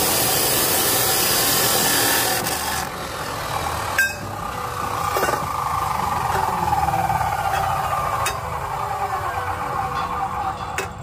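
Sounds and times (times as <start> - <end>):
power cutting tool grinding: 0.0 - 11.0
low engine-like rumble: 2.9 - 11.0.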